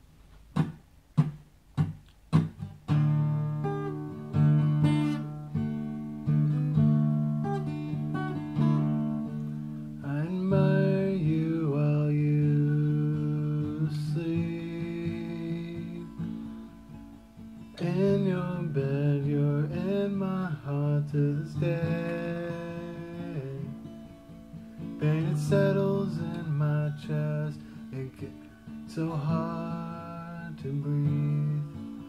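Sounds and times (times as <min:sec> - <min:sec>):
acoustic guitar strumming chords: 0:00.4 - 0:32.0
man singing: 0:10.0 - 0:16.5, 0:17.7 - 0:23.9, 0:25.0 - 0:32.0.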